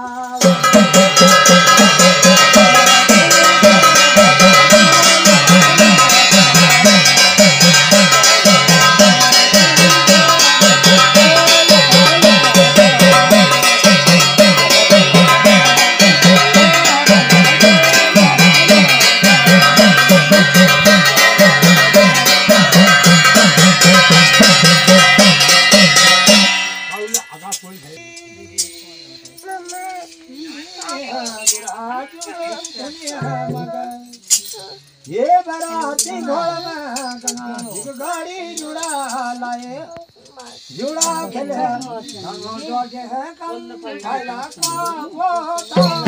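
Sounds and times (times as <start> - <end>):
person singing in wavering voice: 0.0 - 26.0, 27.2 - 46.0
metallic ringing: 0.3 - 34.8, 45.6 - 46.0
drum beaten fast: 0.4 - 27.3, 45.8 - 46.0.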